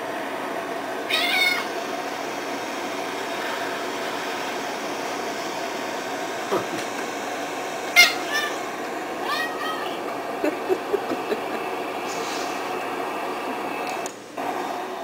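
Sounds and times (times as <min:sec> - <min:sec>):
steady background hum: 0:00.0 - 0:15.0
cat meowing: 0:01.1 - 0:01.7.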